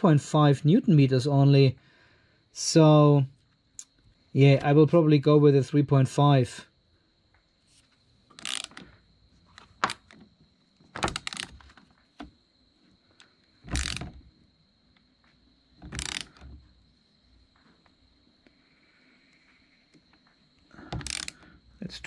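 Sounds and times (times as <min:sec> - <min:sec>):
torque wrench ratcheting clicks: 0:08.3 - 0:08.9, 0:11.0 - 0:11.6, 0:13.7 - 0:14.2, 0:15.8 - 0:16.6, 0:20.9 - 0:21.4.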